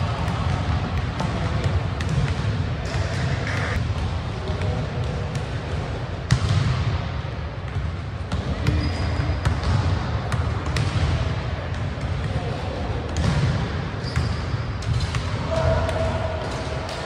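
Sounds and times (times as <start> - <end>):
ball bouncing on gym floor: 0.0 - 7.0, 7.6 - 12.4.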